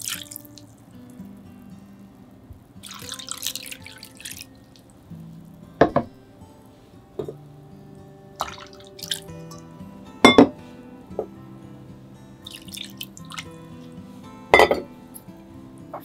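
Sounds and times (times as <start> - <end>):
water dripping in metal bowl: 0.0 - 0.8, 2.8 - 5.6, 8.4 - 10.4, 12.4 - 14.8
soft background music: 0.0 - 16.0.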